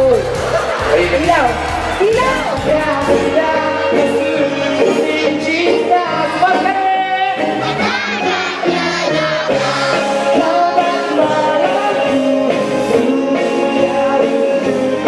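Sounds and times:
instrumental backing music: 0.0 - 15.0
man singing into microphone: 2.6 - 7.6, 9.9 - 15.0.

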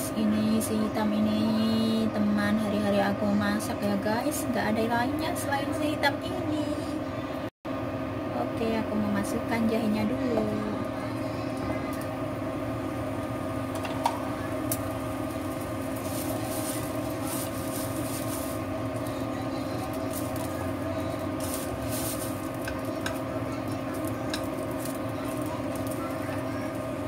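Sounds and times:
induction cooker hum: 0.0 - 27.0
ginger sizzling in hot oil: 10.2 - 27.0.

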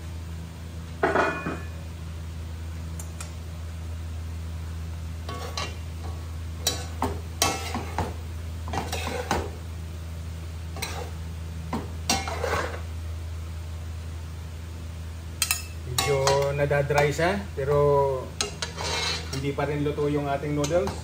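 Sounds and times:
steady low hum: 0.0 - 21.0
spatula scraping a metal pot: 8.8 - 9.4, 10.8 - 11.2, 12.1 - 12.8, 18.4 - 19.4.

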